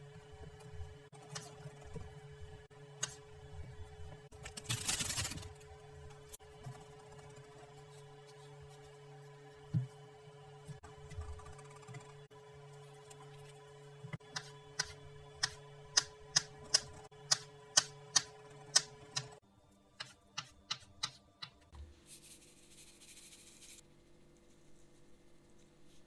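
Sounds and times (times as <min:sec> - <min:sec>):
knife chopping on cutting board: 0:14.2 - 0:19.3.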